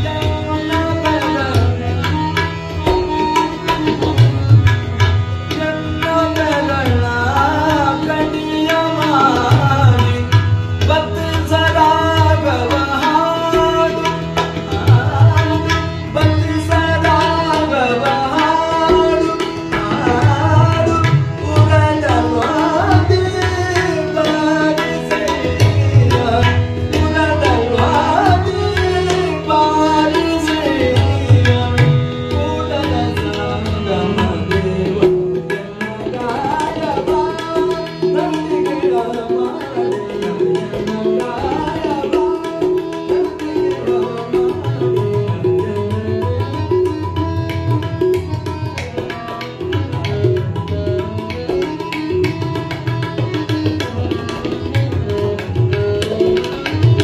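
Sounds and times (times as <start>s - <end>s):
man singing classical style: 0.0s - 46.8s
tabla beats: 0.0s - 57.0s.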